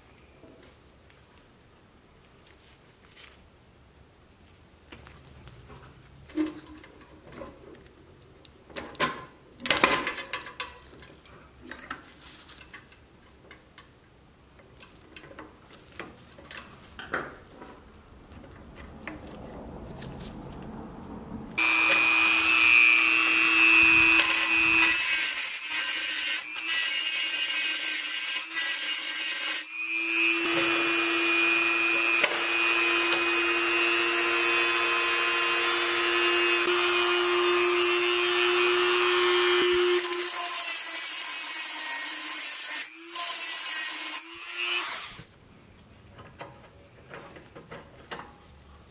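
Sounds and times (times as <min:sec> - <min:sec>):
small electric power tool running: 0:21.6 - 0:45.2.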